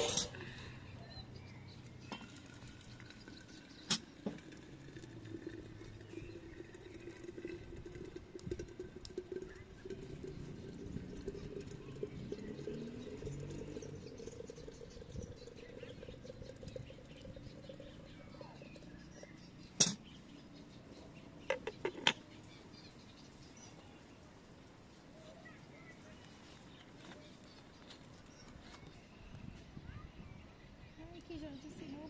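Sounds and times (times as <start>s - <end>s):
hot water pouring into teapot: 1.9s - 19.0s.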